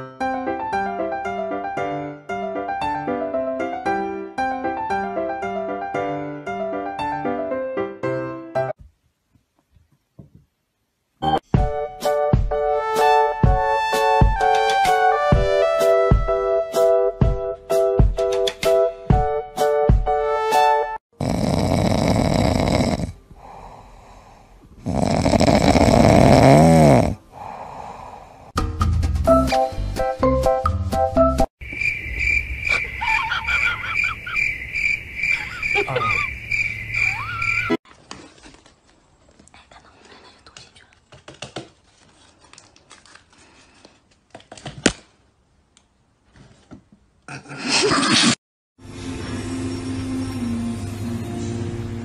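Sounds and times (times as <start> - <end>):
cat snoring: 21.2 - 28.2
cat breathing: 23.2 - 24.7, 27.2 - 28.6.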